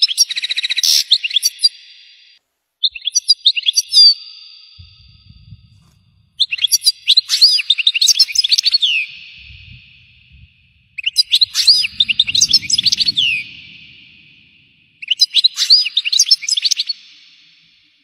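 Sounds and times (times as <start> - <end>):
rapid bird trill: 6.4 - 17.1
goldfinch twittering: 10.8 - 14.3.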